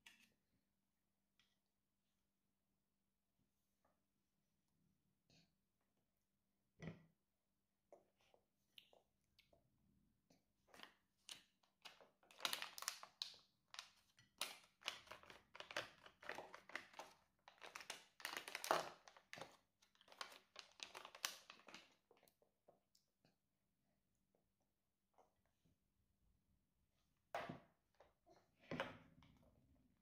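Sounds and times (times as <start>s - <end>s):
plastic pouch crinkling: 11.8s - 21.9s.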